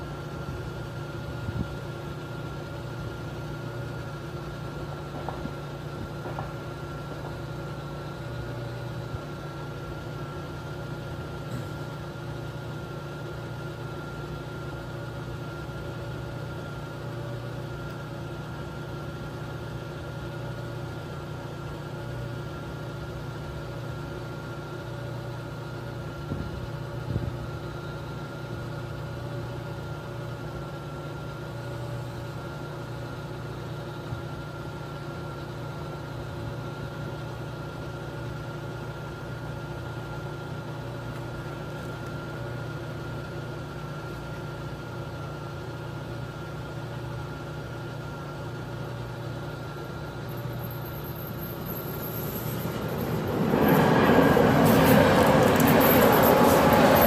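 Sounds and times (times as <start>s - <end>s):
low hum: 50.2s - 57.0s
level crossing warning bell: 51.8s - 57.0s.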